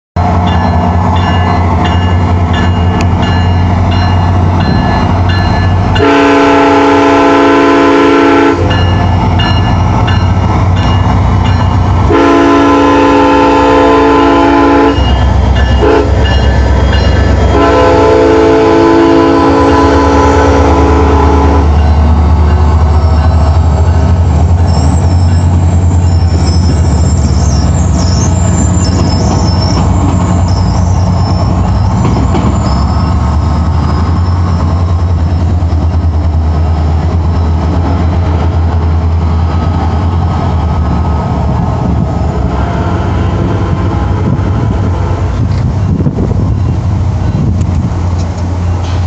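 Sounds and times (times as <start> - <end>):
diesel locomotive engine rumbling: 0.2 - 49.0
train air horn blasts: 6.0 - 8.8, 12.1 - 16.4, 17.5 - 21.8.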